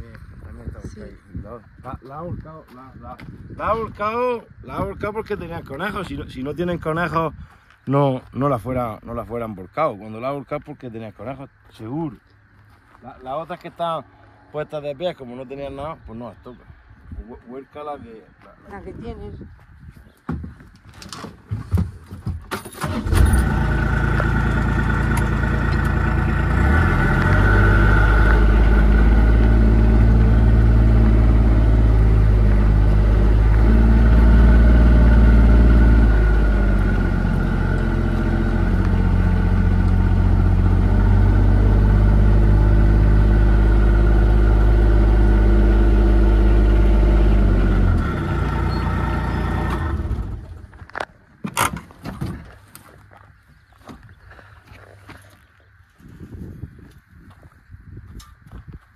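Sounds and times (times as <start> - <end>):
vehicle engine running at low revs: 23.3 - 50.8.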